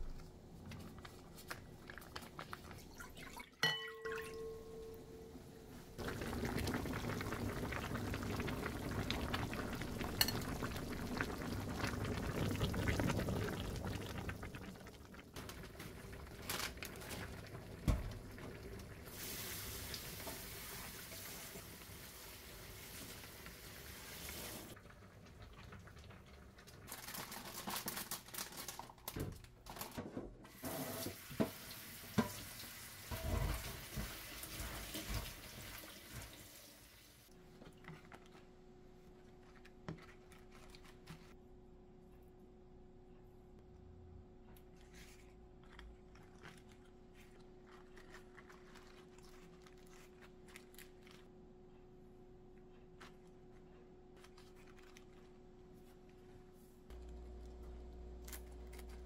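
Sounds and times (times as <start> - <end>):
tap water running into sink: 30.6 - 36.5.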